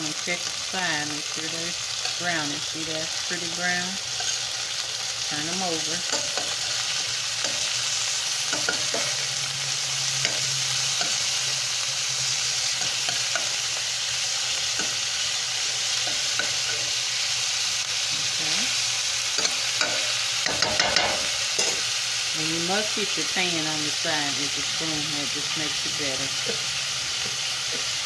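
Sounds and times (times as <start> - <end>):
meat patties sizzling in skillet: 0.0 - 28.0
metal spatula clicks and scrapes: 10.2 - 11.3.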